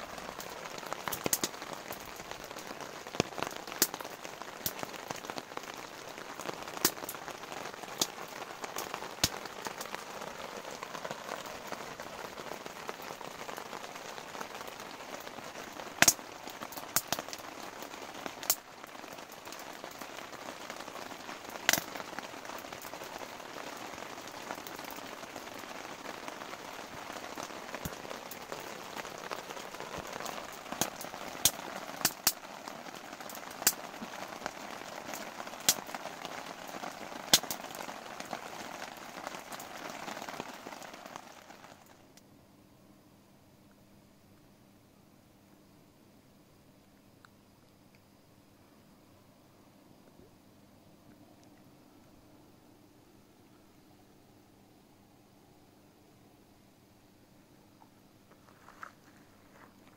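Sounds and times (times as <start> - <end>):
rain pattering on a tent: 0.0 - 42.3, 55.2 - 59.9.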